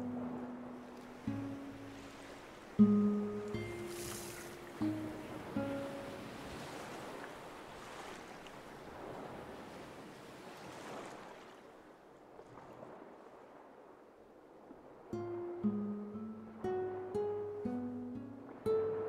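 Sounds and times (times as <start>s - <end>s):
waves washing over rocks: 0.0s - 11.5s.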